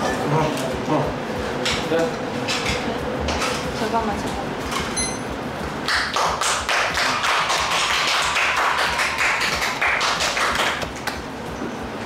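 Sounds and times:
hands clapping: 0:05.8 - 0:11.3.

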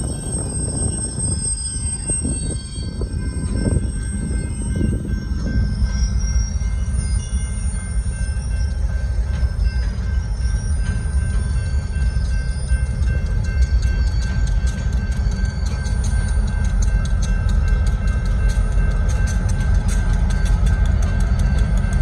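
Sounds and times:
wheels rumbling on rail: 0:00.0 - 0:22.0.

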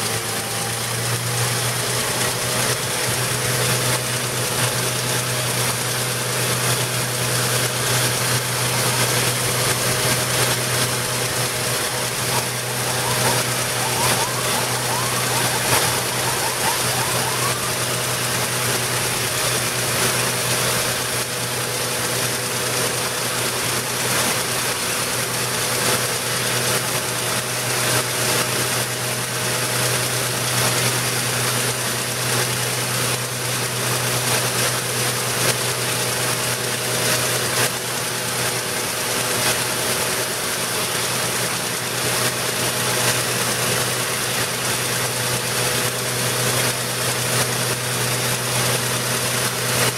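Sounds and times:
truck engine drone: 0:00.0 - 0:24.1
water blasting rushing noise: 0:09.0 - 0:21.4.

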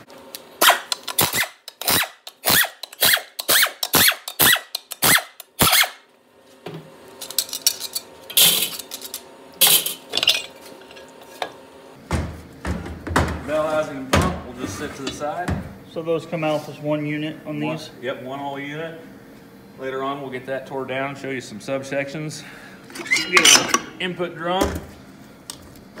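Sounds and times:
metal parts clanking: 0:07.2 - 0:11.0, 0:23.0 - 0:23.8.

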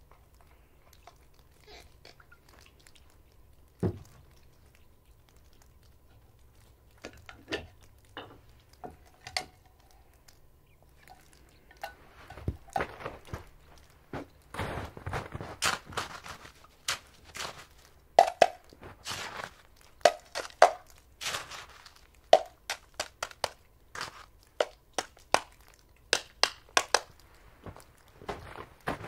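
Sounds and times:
metal cup scooping crusty snow: 0:11.8 - 0:25.7.

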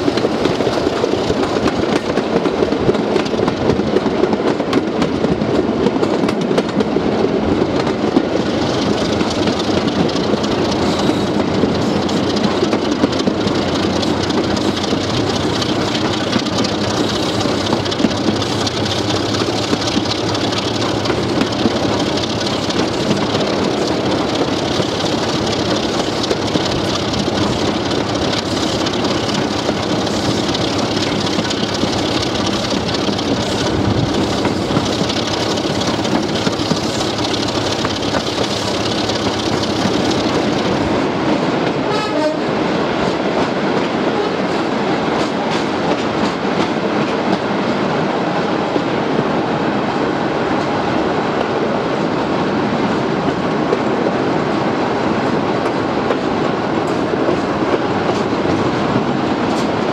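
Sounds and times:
wheels on rails: 0:00.0 - 0:41.0
diesel locomotive engine running: 0:00.0 - 0:47.6.

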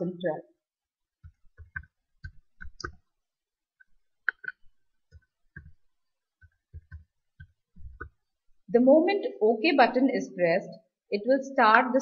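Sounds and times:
keyboard keys clicking: 0:01.2 - 0:03.0, 0:06.4 - 0:08.2.

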